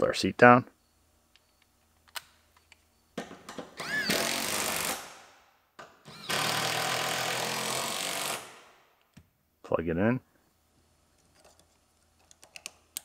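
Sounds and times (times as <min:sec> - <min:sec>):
impact driver running: 0:03.8 - 0:05.1, 0:06.1 - 0:08.5.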